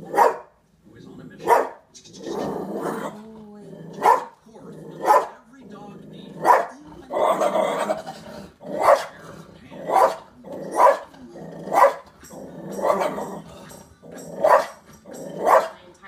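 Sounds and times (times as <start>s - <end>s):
small dog barking: 0.0s - 0.6s, 1.4s - 1.9s, 4.0s - 4.4s, 5.0s - 5.4s, 6.4s - 8.0s, 8.7s - 9.2s, 9.8s - 11.1s, 11.7s - 12.1s, 14.4s - 14.8s, 15.4s - 15.8s.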